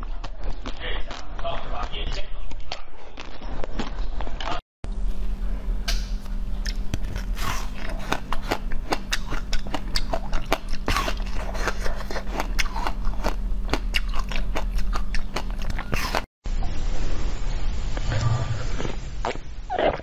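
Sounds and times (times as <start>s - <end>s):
crunching frozen ice treat: 0.0s - 4.6s, 6.6s - 16.3s
steady low hum: 0.0s - 20.0s.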